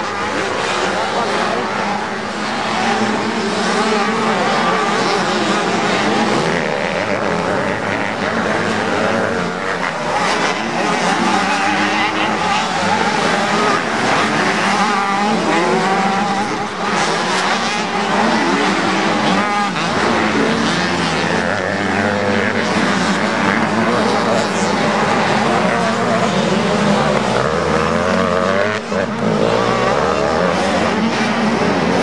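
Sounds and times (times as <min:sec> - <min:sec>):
motocross bike engines revving: 0:00.0 - 0:32.0.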